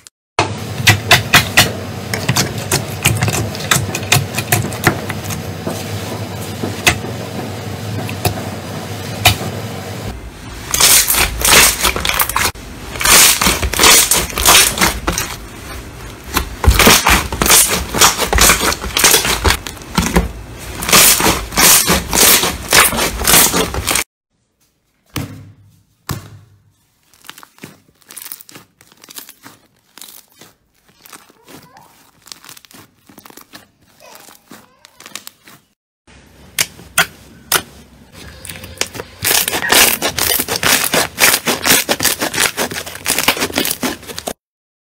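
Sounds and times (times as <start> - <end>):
slime popping and crackling: 10.7 - 15.6, 16.2 - 24.0, 27.0 - 35.6, 38.8 - 44.4
slime crackles and clicks: 27.2 - 35.6.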